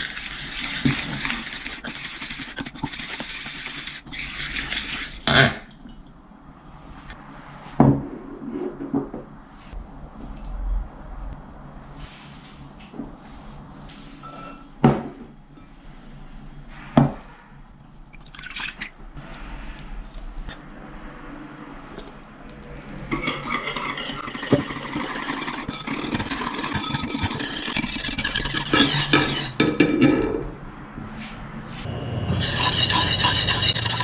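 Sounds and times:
wire whisk scraping: 0.0s - 5.3s, 23.1s - 29.6s, 32.2s - 34.0s.

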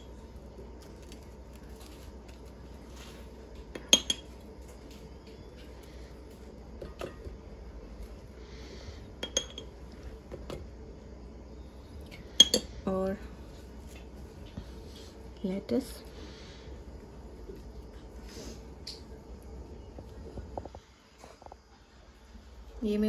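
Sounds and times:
metal spoon clinking on ceramic dishes: 3.8s - 4.3s, 9.2s - 9.7s, 12.4s - 12.7s.

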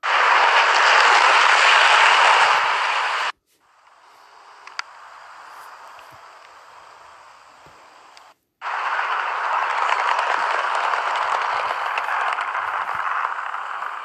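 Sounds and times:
quiet hiss: 0.1s - 8.7s
model train wheels rattling: 8.6s - 14.0s.

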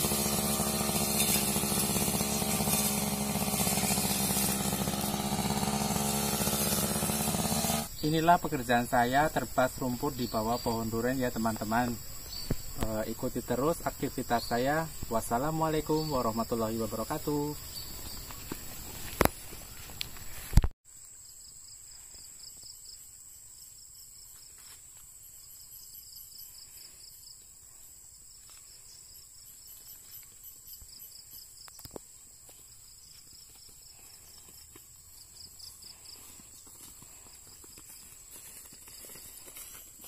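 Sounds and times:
insects chirping: 7.9s - 40.0s
footsteps in grass: 17.4s - 20.8s, 32.0s - 40.0s.

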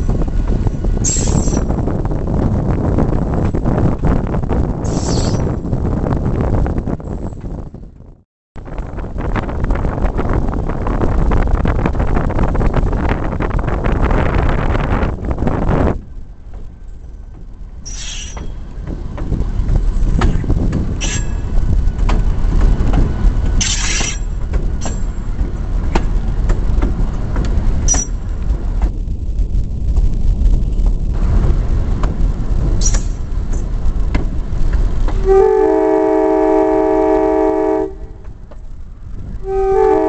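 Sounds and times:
locomotive rumbling on track: 0.0s - 40.0s
metal clanks: 17.8s - 19.4s, 20.2s - 28.2s, 32.8s - 34.3s
train air horn chord: 35.2s - 38.2s, 39.4s - 40.0s.

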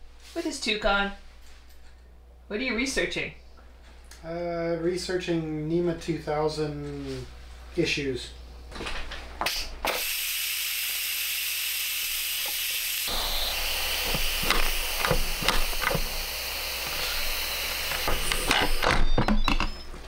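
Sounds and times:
pressure cooker venting steam: 9.5s - 19.5s.

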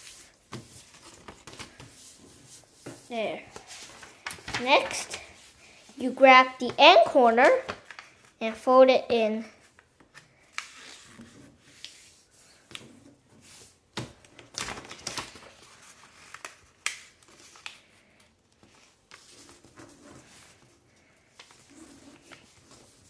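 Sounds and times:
paper rustling and creasing: 0.0s - 8.4s, 9.6s - 23.0s
paper crinkles and taps: 0.5s - 2.0s, 2.8s - 5.3s, 7.4s - 8.3s, 14.0s - 17.8s.

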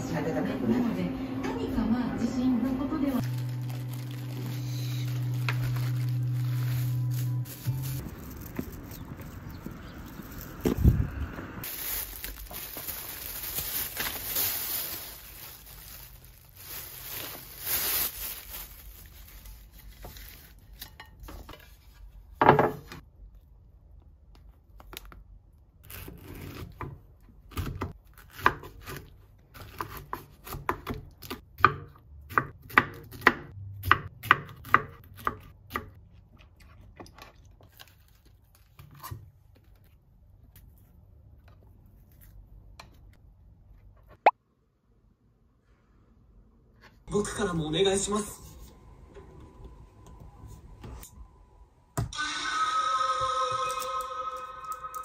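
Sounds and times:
plastic wrapping rustling: 3.2s - 21.8s.

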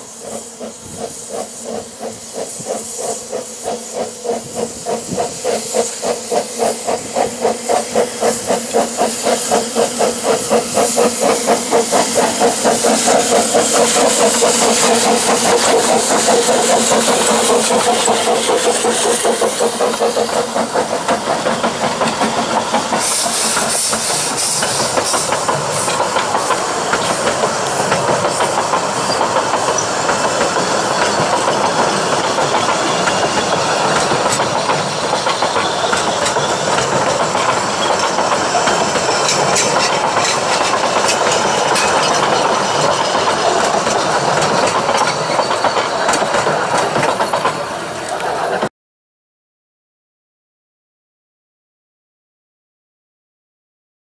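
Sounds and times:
steam locomotive exhaust chuffing: 0.0s - 48.7s
carriages rolling over track: 21.1s - 48.7s.

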